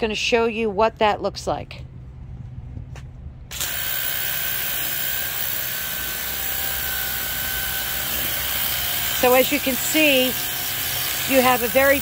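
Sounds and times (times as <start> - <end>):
pump motor whining: 3.5 - 12.0.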